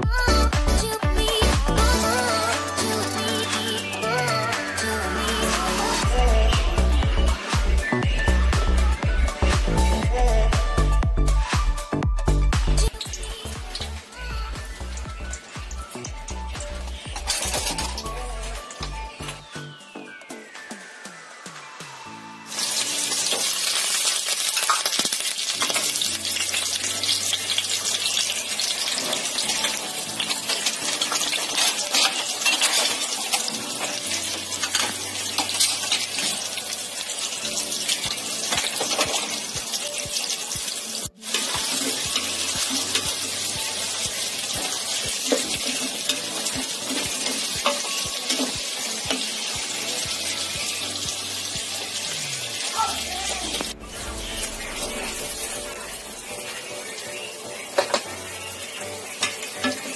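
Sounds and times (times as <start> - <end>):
onions sizzling in hot oil: 14.6 - 18.8, 22.5 - 59.9.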